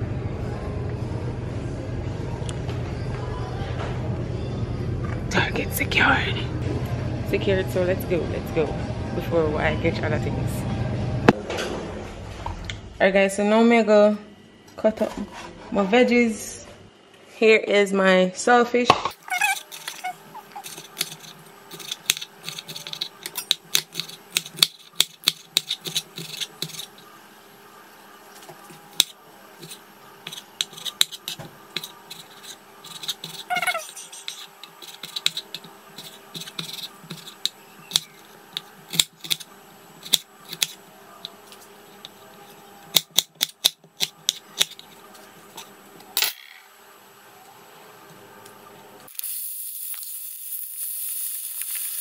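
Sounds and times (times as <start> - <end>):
oil sizzling in a pan: 49.1 - 52.0.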